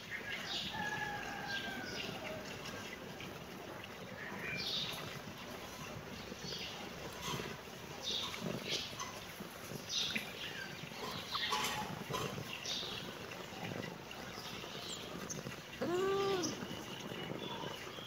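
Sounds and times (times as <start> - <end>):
kitten meowing: 15.8 - 16.6.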